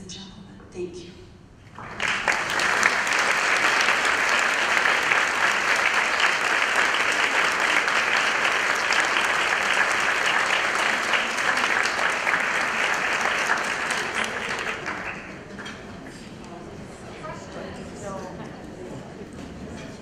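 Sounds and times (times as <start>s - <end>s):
large audience applauding: 1.7s - 16.0s.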